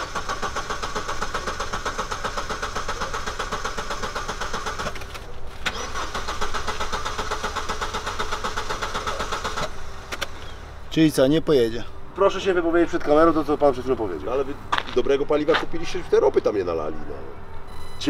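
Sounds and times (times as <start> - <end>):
starter motor cranking engine: 0.0 - 10.6.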